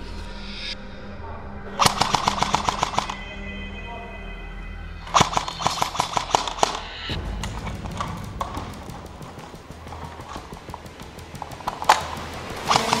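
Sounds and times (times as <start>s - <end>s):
airsoft rifle shots: 1.8s - 3.2s, 5.1s - 13.0s
faint clicks and movement: 5.1s - 13.0s.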